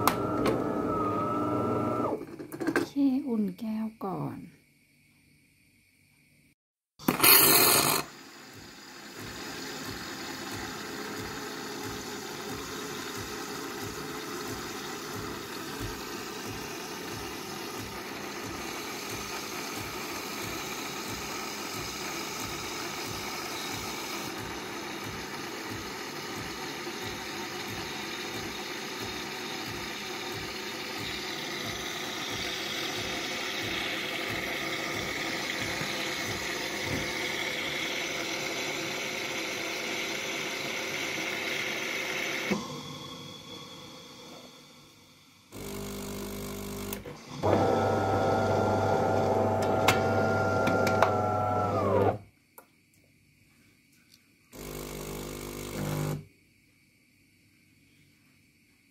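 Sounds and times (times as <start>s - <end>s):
coffee machine pump buzz: 0.0s - 2.2s, 7.0s - 44.9s, 45.5s - 52.3s, 54.5s - 56.3s
steam and milk hissing: 7.2s - 46.0s.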